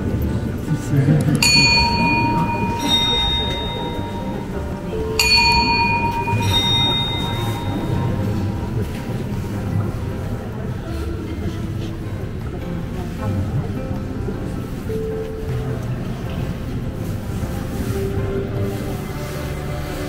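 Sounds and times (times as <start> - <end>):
clock bells two-note chime: 1.4 - 9.2.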